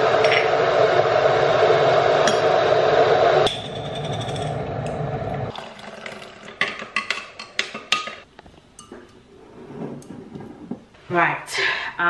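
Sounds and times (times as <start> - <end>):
milk pouring into glass: 5.5 - 6.7.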